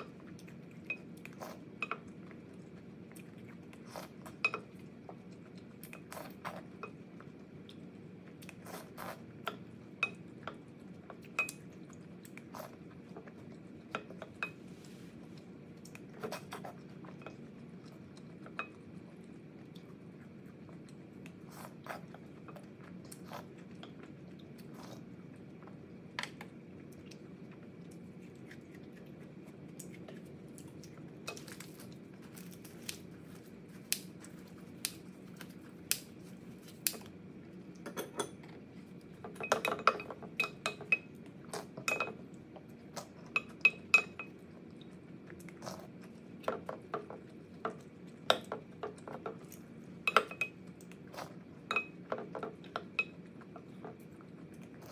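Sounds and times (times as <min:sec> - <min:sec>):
chewing: 0:00.0 - 0:54.9
utensils clinking against glass bowl: 0:37.9 - 0:38.4, 0:39.3 - 0:41.1, 0:41.8 - 0:42.2, 0:43.3 - 0:44.3, 0:50.1 - 0:50.6, 0:51.7 - 0:53.2.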